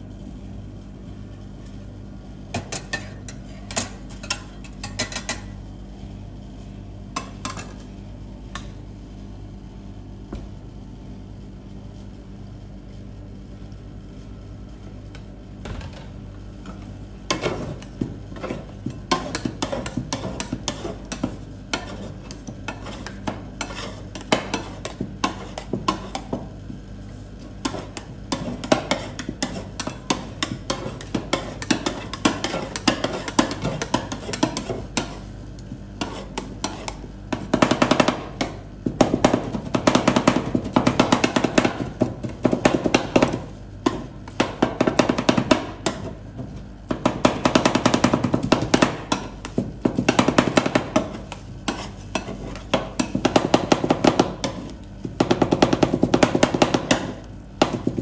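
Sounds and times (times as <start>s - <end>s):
metal spatulas clattering on plate: 2.6s - 5.5s.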